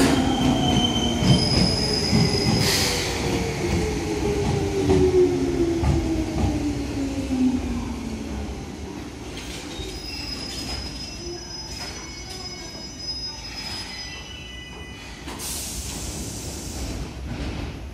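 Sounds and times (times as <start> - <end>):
train brakes squealing: 0.0 - 3.4, 9.4 - 16.8.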